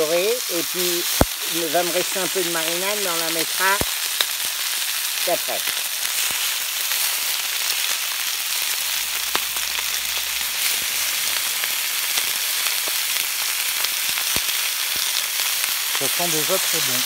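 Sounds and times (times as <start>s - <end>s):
quail sizzling on a hot plate: 0.0s - 17.0s
fat popping and crackling: 0.2s - 16.9s.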